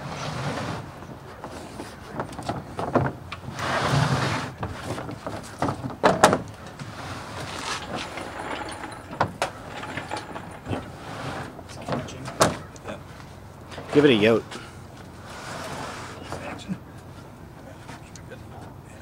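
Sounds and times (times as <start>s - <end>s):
scraping in truck bed: 0.0s - 16.7s
engine block knocks and clunks: 1.4s - 3.4s, 4.5s - 12.8s.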